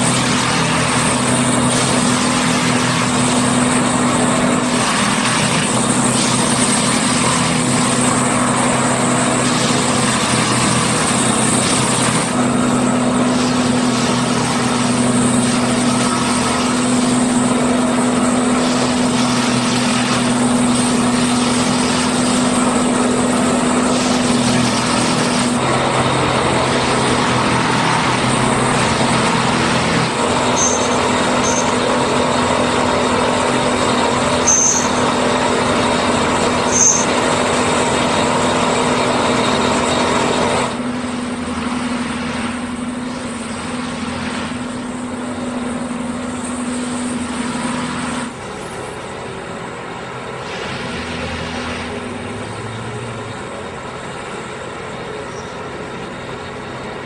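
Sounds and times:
diesel engine humming: 0.0s - 57.0s
short high chirps: 30.5s - 31.8s, 34.4s - 35.1s.

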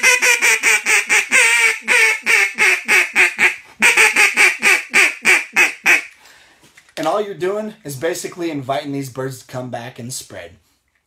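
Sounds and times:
duck call quacks: 0.0s - 6.2s.

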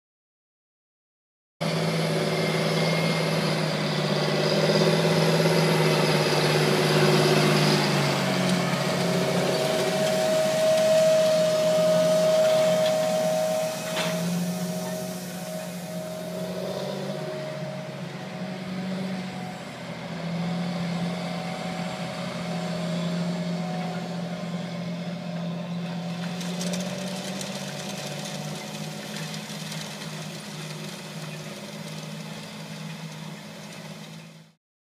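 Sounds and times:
tractor diesel engine running: 1.6s - 34.6s
hiss: 10.2s - 17.2s.

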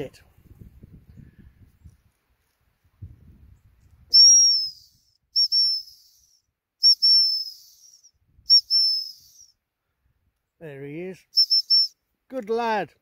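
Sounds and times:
dog whistle blasts: 4.1s - 9.5s, 11.4s - 12.0s.

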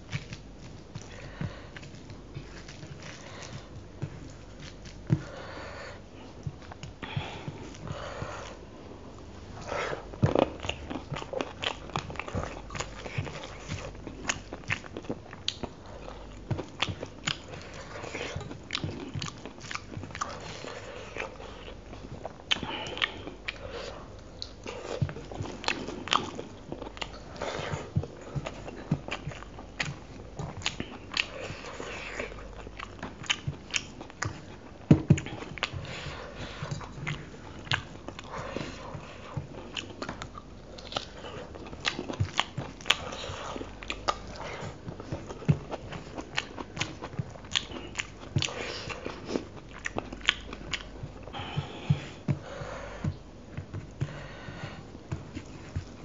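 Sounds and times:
person chewing with wet smacks: 0.0s - 8.6s, 9.2s - 56.0s.

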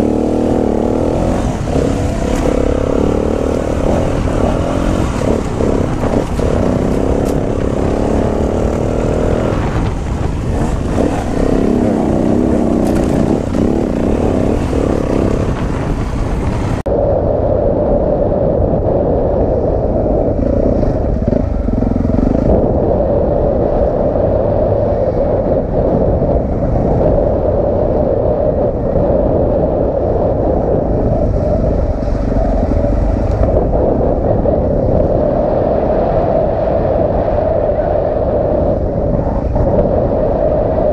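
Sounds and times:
dirt bike engine running: 0.0s - 16.8s, 19.7s - 22.8s.

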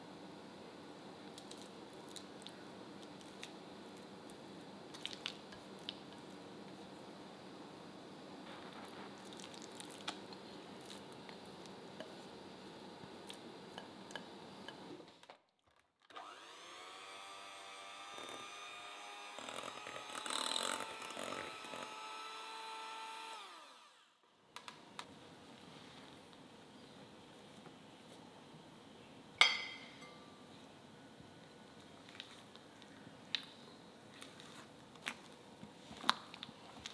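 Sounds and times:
electric hand mixer beating batter: 16.2s - 24.0s.

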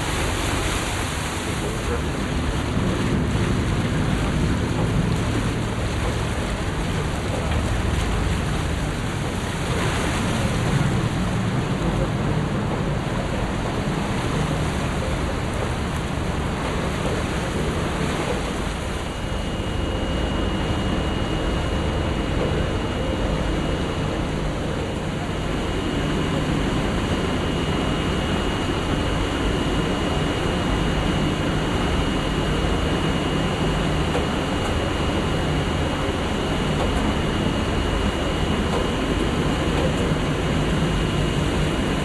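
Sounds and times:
boat engine drone: 0.0s - 42.0s
water and wind noise: 0.0s - 42.0s
faint high whine: 16.6s - 42.0s.

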